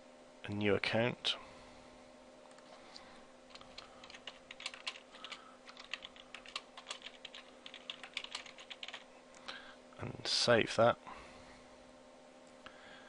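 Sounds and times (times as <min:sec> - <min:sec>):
faint steady hum: 0:00.0 - 0:13.0
typing on computer keyboard: 0:03.5 - 0:09.0.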